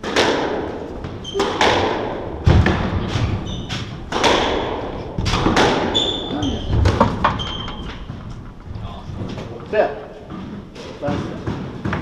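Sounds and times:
squash ball hits: 0.0 - 12.0
shoe squeaks on wooden floor: 1.2 - 1.6, 3.3 - 4.1, 5.8 - 9.1.

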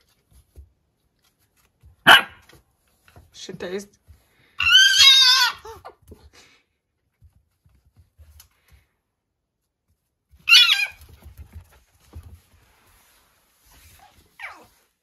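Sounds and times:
animals scuffling: 9.8 - 15.0.

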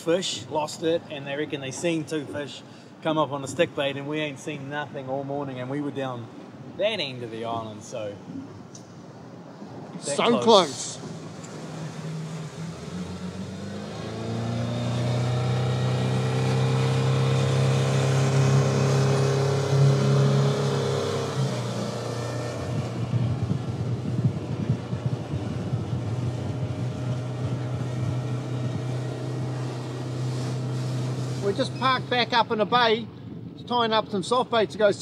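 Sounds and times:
water rushing and spattering: 7.3 - 32.7
outboard motor running: 10.2 - 32.4.

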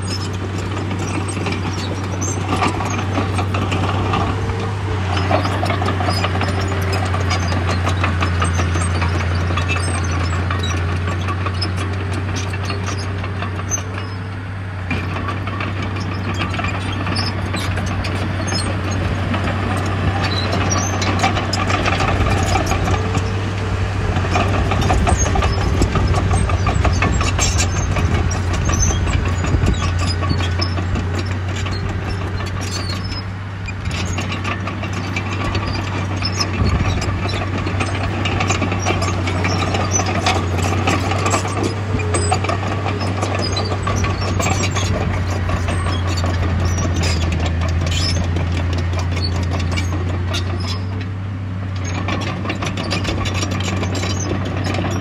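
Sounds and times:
heavy machinery engine drone: 0.0 - 55.0
rattles and clinks: 24.2 - 51.0.

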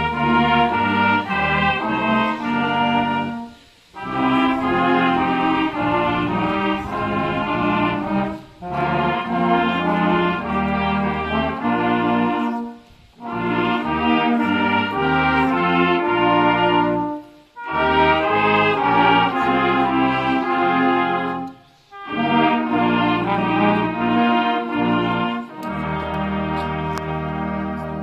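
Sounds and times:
brass choir playing: 0.0 - 28.0.

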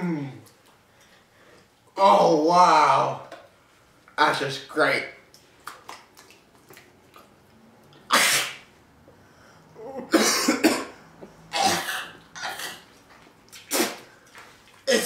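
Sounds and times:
man coughing harshly: 10.1 - 12.8.

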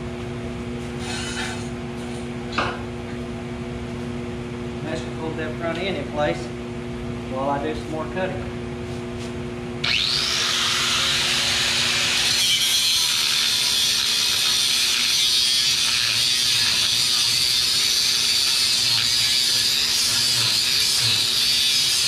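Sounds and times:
angle grinder cutting steel: 9.8 - 22.0.

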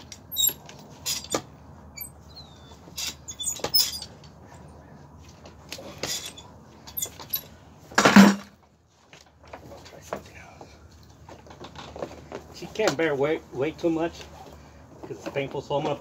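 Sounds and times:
hoof scraping and knocking: 0.0 - 4.4.

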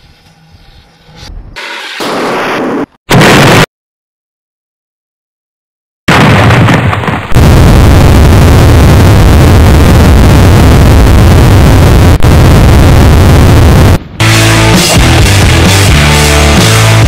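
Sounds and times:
explosion blast: 2.0 - 3.7, 6.1 - 14.0
loud roar with heavy rumble: 7.4 - 17.0.

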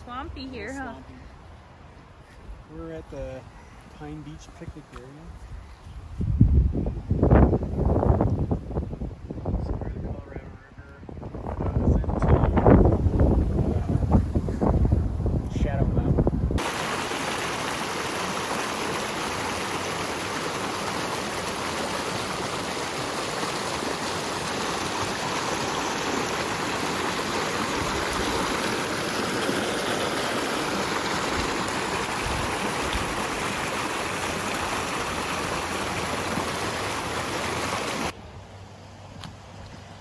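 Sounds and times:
stream rushing over rocks: 16.6 - 38.2.

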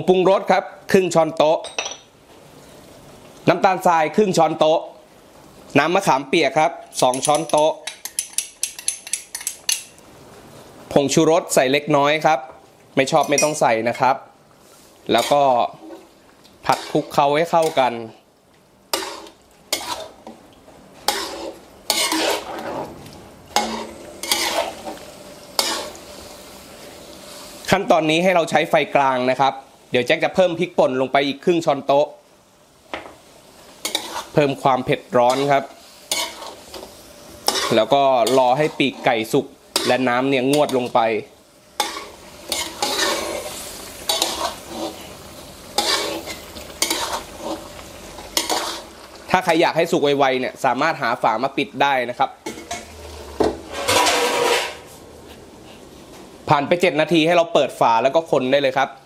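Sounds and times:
sauce sizzling: 2.1 - 57.3
metal spatula scraping wok: 15.1 - 17.9, 18.9 - 20.3, 21.0 - 26.3, 33.8 - 41.2, 41.8 - 49.0, 52.4 - 55.0.

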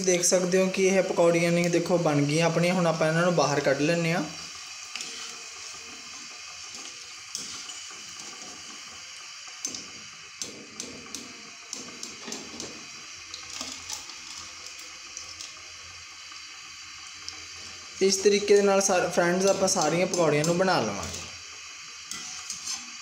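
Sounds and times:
deep-frying sizzling hiss: 0.0 - 23.0.

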